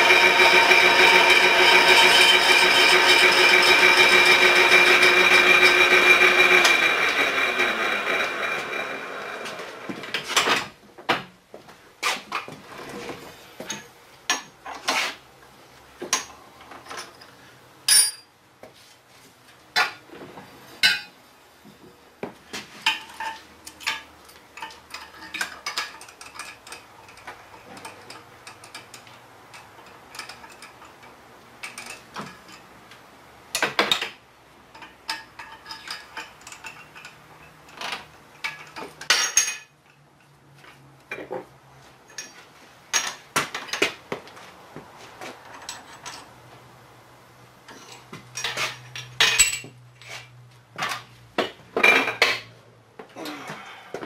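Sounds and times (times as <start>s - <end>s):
low machine hum: 0.0s - 9.4s
metal tooling clinking: 17.9s - 18.3s.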